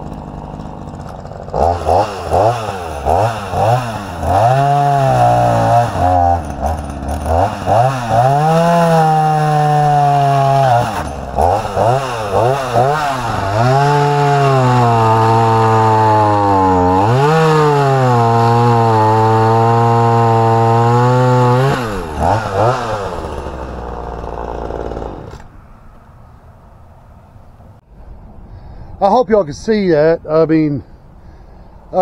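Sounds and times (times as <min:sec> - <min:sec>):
chainsaw revving and cutting: 0:00.0 - 0:25.5.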